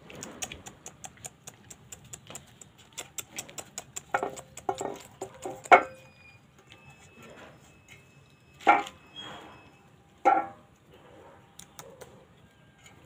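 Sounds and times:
puppies licking and scrabbling: 0.0s - 5.8s.

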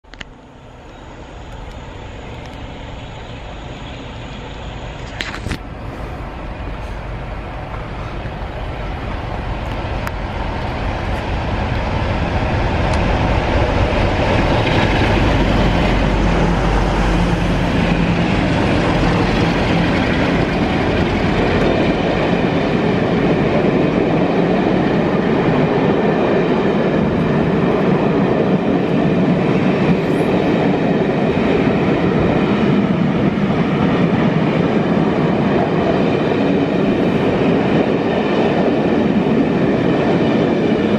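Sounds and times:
diesel locomotives passing: 0.0s - 40.9s
train wheels on rails: 0.0s - 40.9s.

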